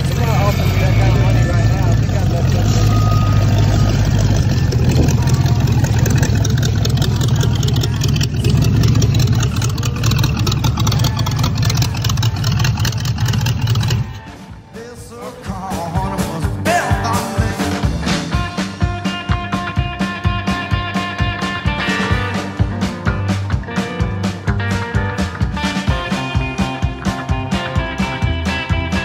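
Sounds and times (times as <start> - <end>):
hot rod engine running: 0.0 - 14.5
rockabilly band music: 0.0 - 29.0.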